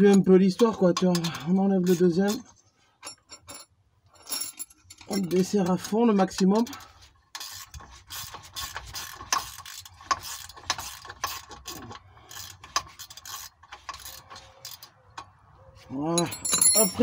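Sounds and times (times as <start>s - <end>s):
ratchet wrench clicking: 6.6s - 15.0s.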